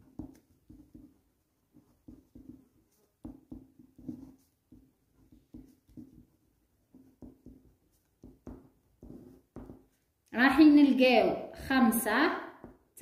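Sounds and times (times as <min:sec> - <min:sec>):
pen writing on paper: 0:00.2 - 0:09.9.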